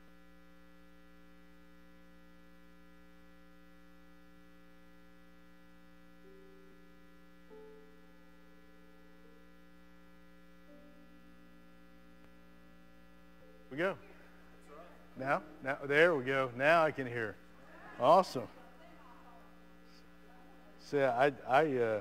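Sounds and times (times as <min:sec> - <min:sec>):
faint mains hum: 0:00.0 - 0:22.0.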